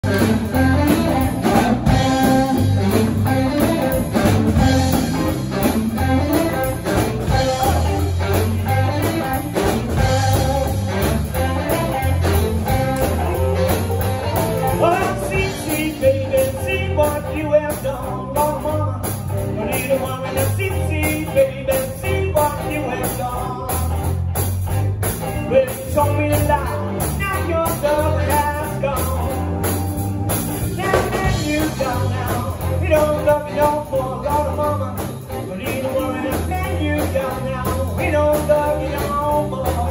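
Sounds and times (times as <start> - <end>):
saxophone: 0.0 - 17.3, 18.2 - 23.7
man singing lead vocal: 0.0 - 24.2, 25.4 - 29.8, 30.7 - 39.9
drum kit: 0.0 - 39.9
electric guitar: 0.0 - 39.9.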